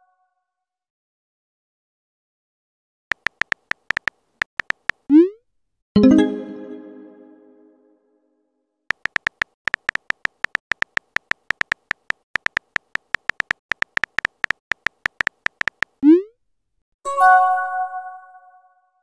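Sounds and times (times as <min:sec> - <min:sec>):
electronic typing beep-clicks: 0:03.1 - 0:05.3, 0:08.9 - 0:16.3
message chime: 0:06.0 - 0:07.8.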